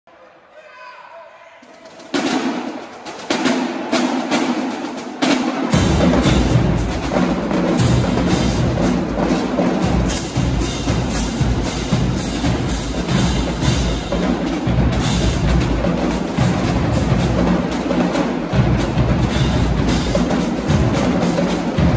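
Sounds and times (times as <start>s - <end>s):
snare drums: 1.6s - 21.9s
bass drums: 5.7s - 21.9s.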